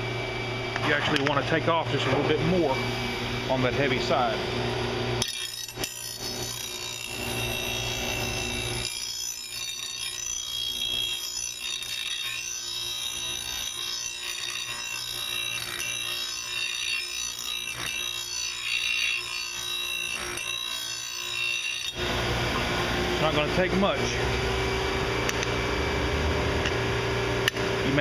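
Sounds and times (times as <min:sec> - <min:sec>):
grinding wheel on steel: 0:05.2 - 0:22.6.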